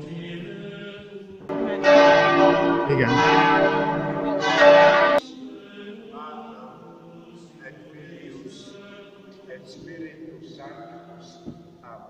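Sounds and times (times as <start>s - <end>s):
church bells ringing: 1.5s - 5.2s.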